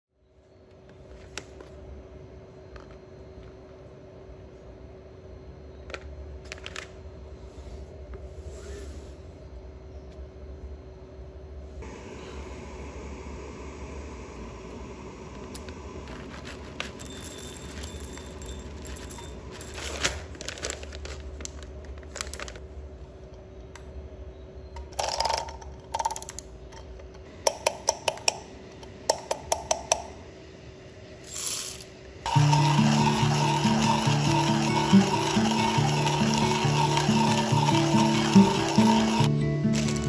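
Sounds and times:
coffee beans rattling: 16.2s - 22.7s, 24.8s - 26.4s, 31.2s - 40.0s
paper bag crinkling: 18.8s - 22.8s, 32.3s - 40.0s
background music: 32.3s - 40.0s.

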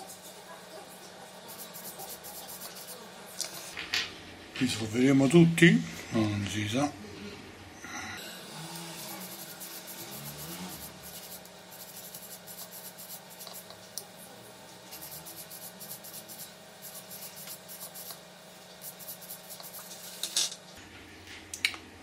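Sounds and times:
wire brush scrubbing metal: 1.4s - 3.8s, 8.4s - 13.7s, 14.8s - 18.2s.

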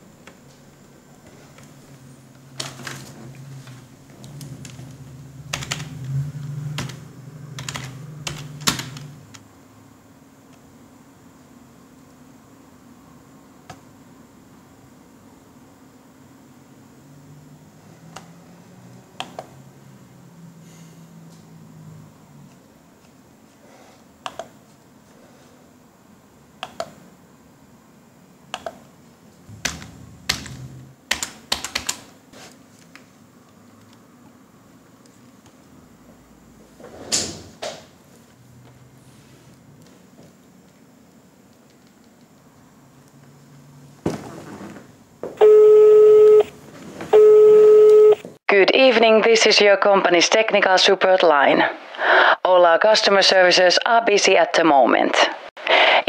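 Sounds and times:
computer keyboard keys clicking: 5.5s - 6.1s, 7.6s - 9.4s, 28.6s - 28.8s, 29.6s - 32.1s
mouse clicks: 26.6s - 27.0s.

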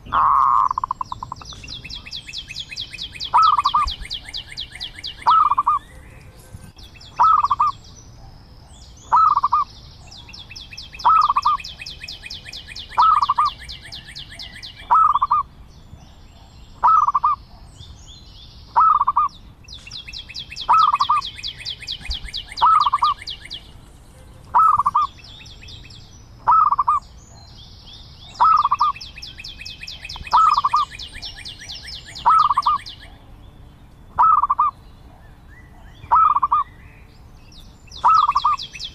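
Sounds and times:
dove calling: 0.0s - 18.0s, 18.7s - 27.6s, 28.2s - 33.4s, 34.1s - 36.8s, 37.6s - 38.9s
high-pitched chirping trills: 37.9s - 38.9s.

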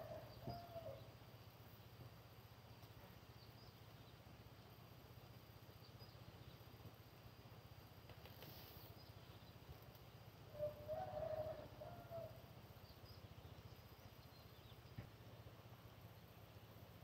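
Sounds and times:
faint low hum: 0.0s - 17.0s
bird calling: 10.5s - 15.1s.

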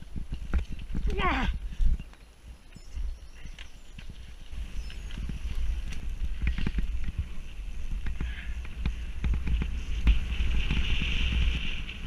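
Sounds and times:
wind on microphone: 0.0s - 12.0s
bike rattling over bumps: 3.9s - 12.0s.

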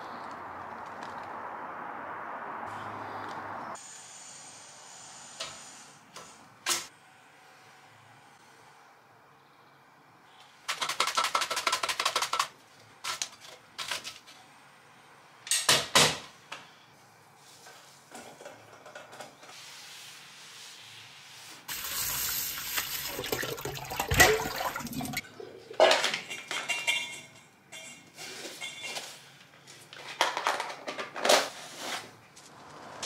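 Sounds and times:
tap water running: 21.7s - 25.2s
metal kitchenware clattering: 24.0s - 29.0s.

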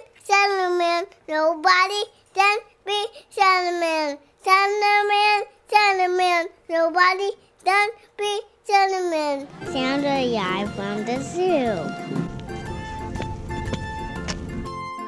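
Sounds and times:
child singing: 0.0s - 12.0s.

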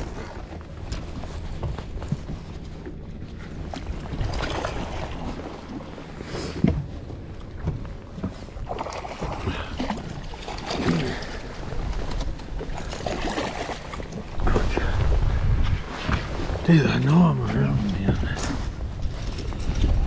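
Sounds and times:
water slapping boat hull: 0.0s - 20.0s
wind buffeting microphone: 14.2s - 20.0s.

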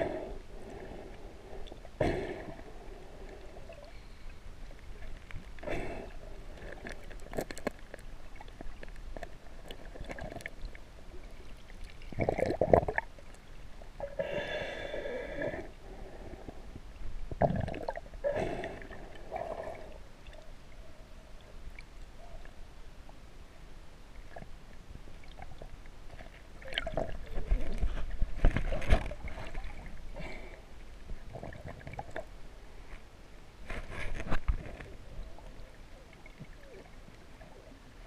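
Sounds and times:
underwater gurgling and sloshing: 0.0s - 38.0s.

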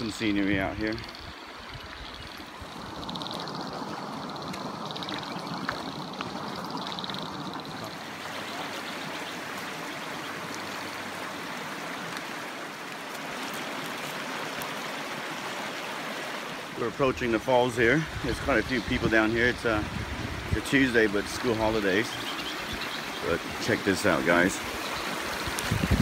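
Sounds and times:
creek water rushing over rocks: 0.0s - 26.0s.

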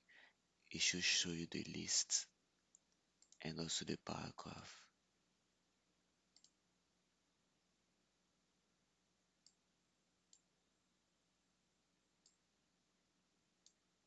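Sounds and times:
computer mouse clicks: 6.3s - 6.6s.

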